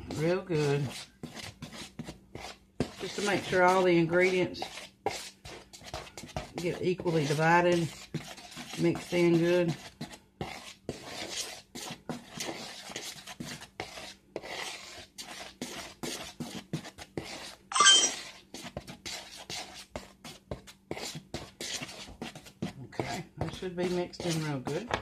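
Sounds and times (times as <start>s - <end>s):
utensil scraping a mixing bowl: 0.0s - 25.0s
brief ringing sound: 17.7s - 18.2s.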